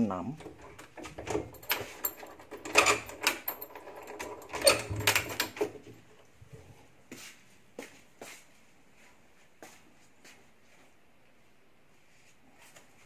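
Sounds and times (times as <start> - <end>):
door opening with rattles: 0.4 - 6.2.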